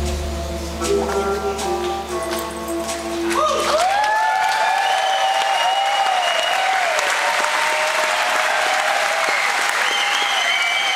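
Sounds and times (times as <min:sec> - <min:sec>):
audience applauding and cheering: 0:03.2 - 0:10.9
whoops and whistles: 0:03.4 - 0:06.8, 0:09.2 - 0:10.9.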